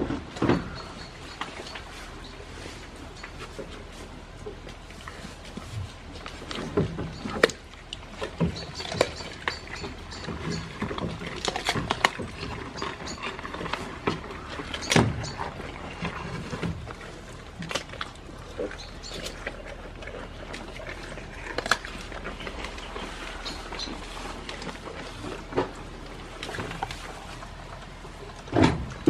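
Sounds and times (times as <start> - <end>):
goats knocking wooden boards: 0.0 - 1.8, 6.3 - 19.5.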